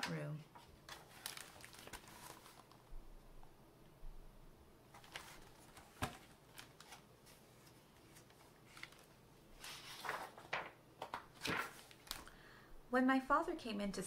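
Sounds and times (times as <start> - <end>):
paper pages rustling: 0.6 - 2.9, 4.9 - 12.3.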